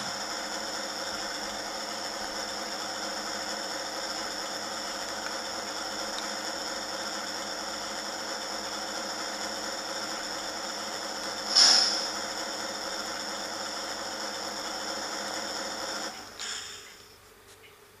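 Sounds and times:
diesel engine idling through small speaker: 0.0 - 17.0
loud hiss: 11.3 - 12.5.

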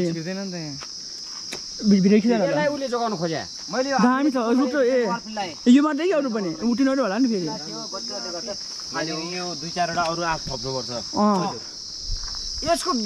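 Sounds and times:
high-pitched insect chorus: 0.0 - 13.0
people talking loudly: 1.8 - 11.8, 12.6 - 13.0.

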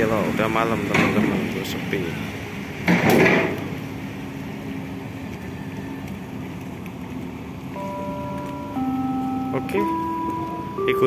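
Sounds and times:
low engine hum: 3.5 - 11.0.

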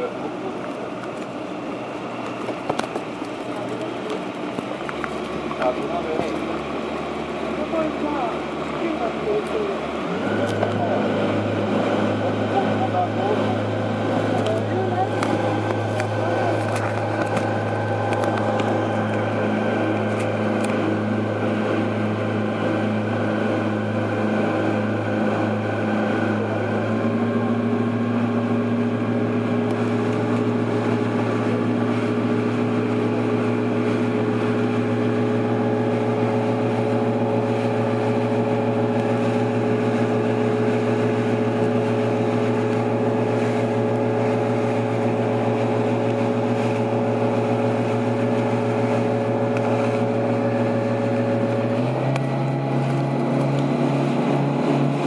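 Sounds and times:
motorboat engine droning: 0.0 - 55.0.

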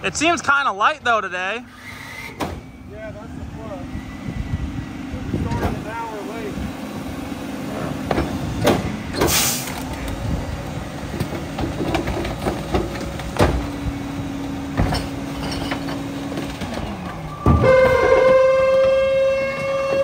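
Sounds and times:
hydraulics humming: 0.0 - 20.0
garbage truck idling: 2.6 - 20.0
knocks and clanks: 8.0 - 10.0, 11.1 - 13.8, 14.7 - 20.0
short hiss: 9.3 - 9.8.

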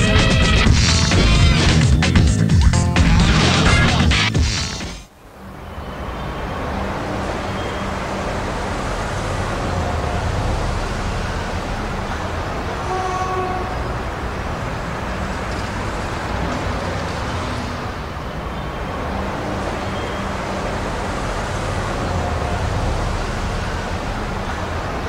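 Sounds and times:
car engines idling: 0.0 - 25.0
car horn toots: 12.8 - 14.2.

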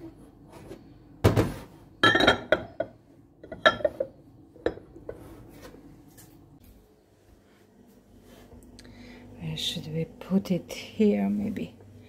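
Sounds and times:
glass bowl clinking on steel: 2.0 - 4.9.

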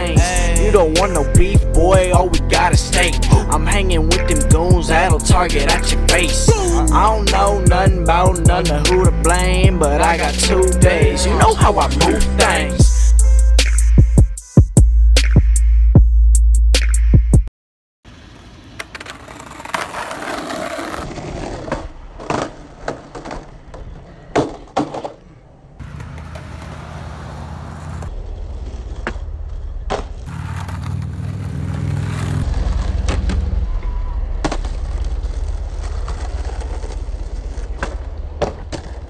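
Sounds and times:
skateboard wheels rolling: 18.1 - 39.0
skateboard pops and landings: 18.7 - 26.8, 28.8 - 31.4, 32.0 - 39.0.

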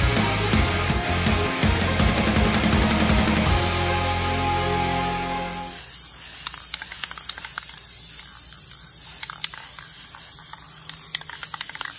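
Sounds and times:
steady hiss: 5.4 - 11.9.

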